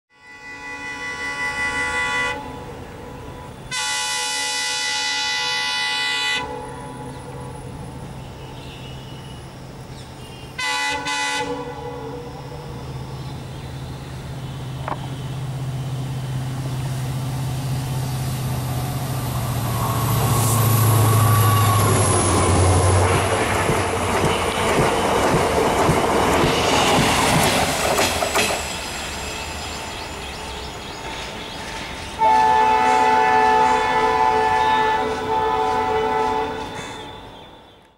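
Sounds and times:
locomotive air horn blasts: 0.1s - 7.5s, 10.2s - 12.4s, 32.2s - 37.4s
train coaches rushing past: 0.4s - 37.8s.

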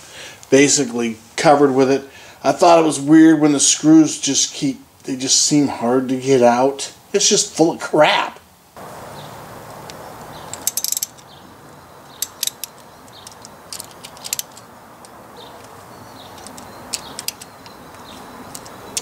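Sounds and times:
hand ratchet clicking: 10.5s - 11.2s, 12.1s - 19.0s.

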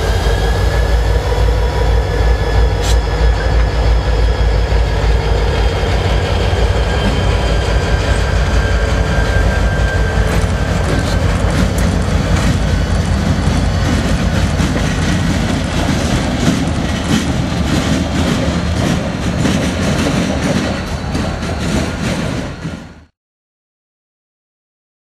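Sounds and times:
diesel locomotive engines: 0.0s - 23.1s
wheels clicking over rail joints: 9.8s - 22.8s.

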